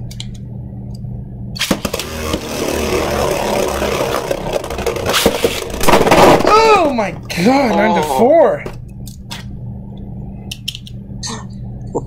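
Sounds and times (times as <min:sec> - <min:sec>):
spinning top whirring hiss: 0:01.6 - 0:05.8
spinning tops clattering on plastic: 0:01.7 - 0:06.2.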